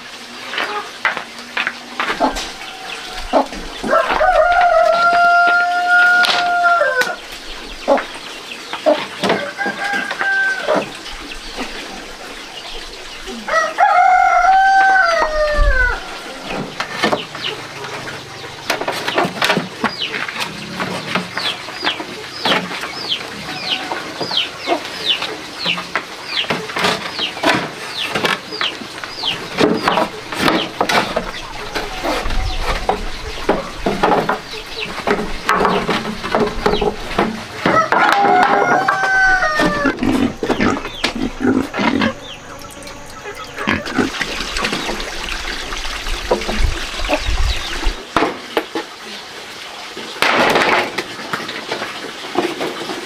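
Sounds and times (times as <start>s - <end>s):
rooster crowing: 2.2s - 7.2s, 9.3s - 10.9s, 13.4s - 16.6s, 37.6s - 40.0s.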